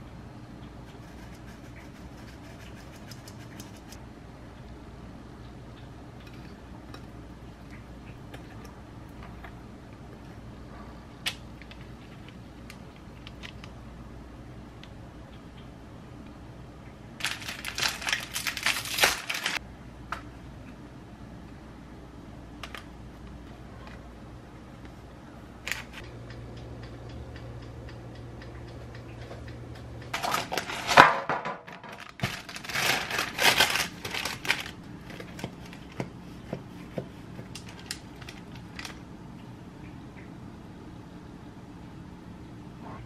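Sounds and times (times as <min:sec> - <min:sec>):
parchment paper rustling: 0:17.2 - 0:19.6, 0:30.1 - 0:31.1, 0:31.8 - 0:39.0.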